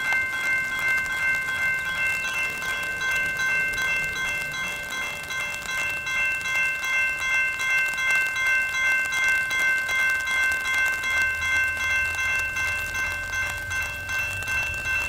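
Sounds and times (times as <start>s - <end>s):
crossing warning bell ringing: 0.0s - 15.0s
train rumble: 0.0s - 15.0s.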